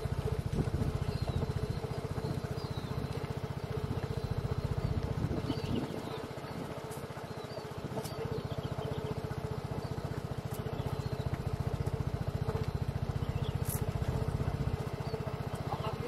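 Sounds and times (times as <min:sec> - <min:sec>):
motor throbbing: 0:00.0 - 0:16.0
faint bird chirps: 0:01.0 - 0:11.5.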